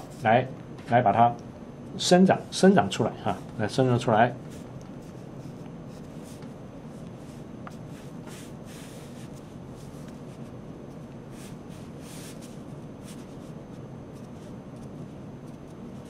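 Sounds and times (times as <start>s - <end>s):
low room hum: 0.0s - 16.0s
brush swishing on paper: 7.1s - 10.5s, 11.3s - 13.6s.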